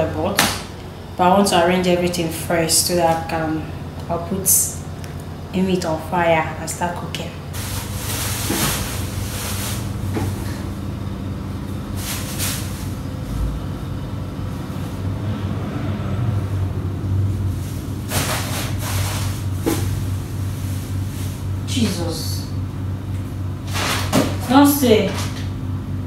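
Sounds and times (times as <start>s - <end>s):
low mechanical hum: 0.0s - 26.0s
handling noise: 7.5s - 10.7s.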